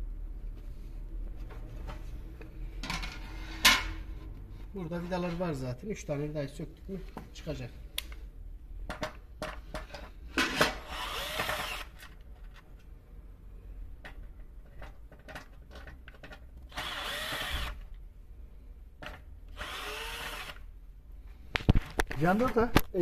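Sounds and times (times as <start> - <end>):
cordless drill motor running: 10.8 - 12.0, 16.7 - 17.8, 19.5 - 20.6.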